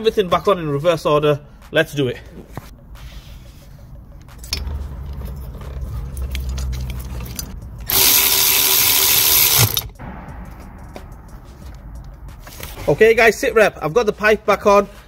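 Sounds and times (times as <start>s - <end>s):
power tool driving bolt: 7.9s - 9.9s.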